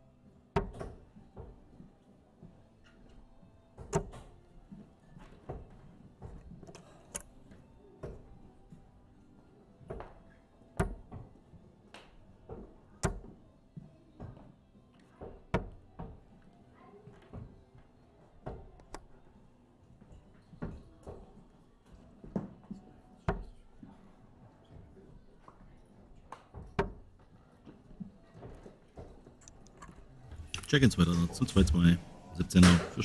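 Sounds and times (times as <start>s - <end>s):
faint background music: 0.0s - 33.0s
darts striking dartboard: 0.6s - 1.0s, 10.8s - 11.2s, 32.4s - 33.0s.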